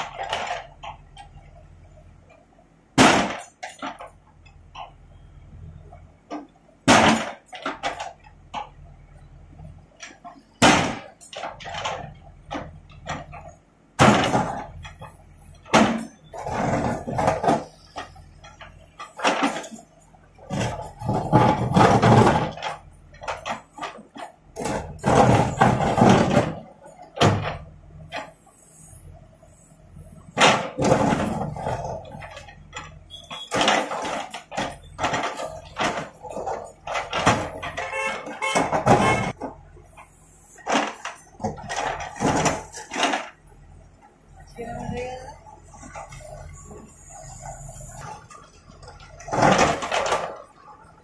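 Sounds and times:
rubble scraping and clattering: 0:00.0 - 0:05.0, 0:05.9 - 0:51.0
diesel engine running: 0:00.0 - 0:51.0.

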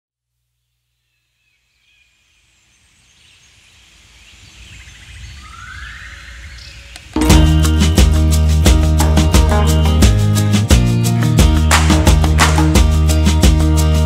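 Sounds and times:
bird chirps and calls: 0:01.0 - 0:07.2
bird trill: 0:03.2 - 0:07.2.

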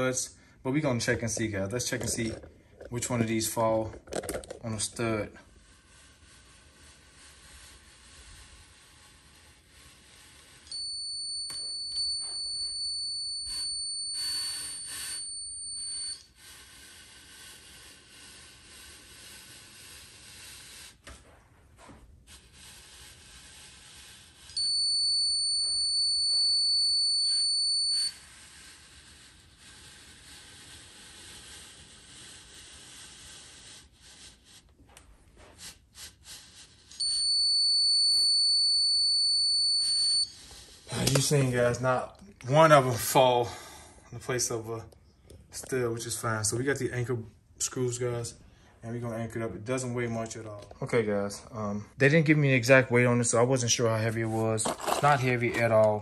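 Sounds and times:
stud finder high steady beep: 0:10.1 - 0:16.4, 0:24.4 - 0:28.4, 0:36.9 - 0:41.8
stud finder scuffing across drywall: 0:16.6 - 0:24.7, 0:28.1 - 0:37.0.

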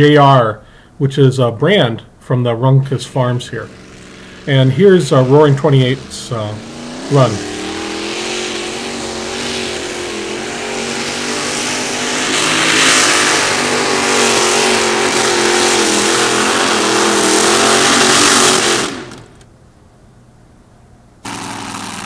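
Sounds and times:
tractor engine running flat out: 0:03.1 - 0:19.4, 0:21.2 - 0:22.0.

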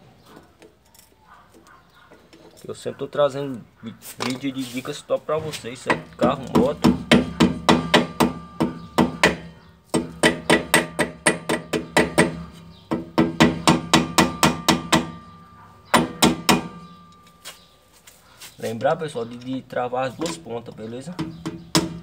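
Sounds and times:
hammer tapping on metal: 0:05.8 - 0:17.6, 0:21.1 - 0:22.0.

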